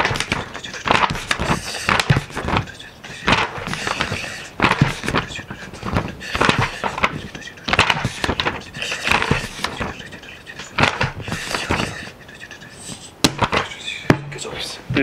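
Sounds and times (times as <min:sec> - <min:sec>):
book pages turning: 0:00.0 - 0:12.3, 0:12.9 - 0:13.9.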